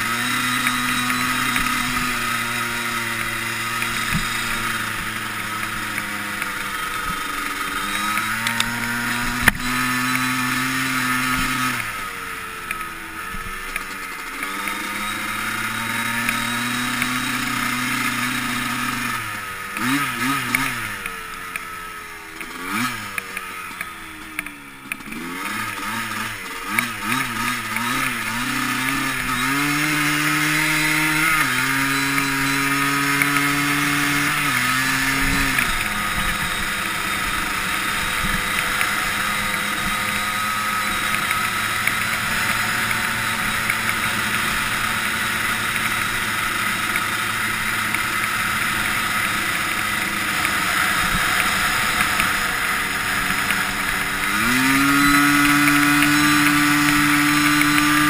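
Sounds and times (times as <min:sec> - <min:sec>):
two-stroke engine running: 0:00.0 - 0:58.0.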